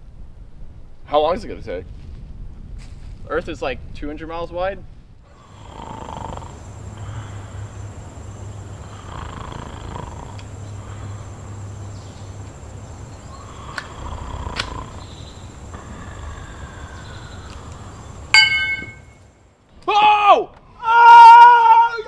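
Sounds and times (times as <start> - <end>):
man snoring: 5.3 - 8.0, 8.6 - 11.5, 13.3 - 17.4.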